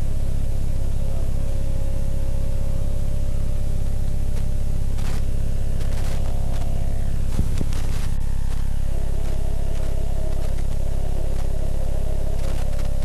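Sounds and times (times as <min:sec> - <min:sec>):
faint held tone: 0:00.0 - 0:13.0
low throbbing drone: 0:00.0 - 0:13.0
scattered clicks: 0:04.0 - 0:13.0.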